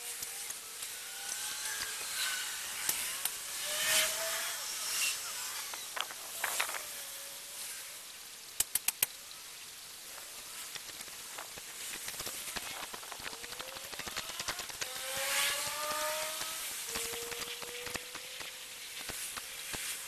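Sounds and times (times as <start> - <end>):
outdoor ambient hiss: 0.0 - 20.0
faint rising and falling whistles: 0.1 - 8.0, 12.5 - 20.0
quick sharp clicks: 8.6 - 9.2.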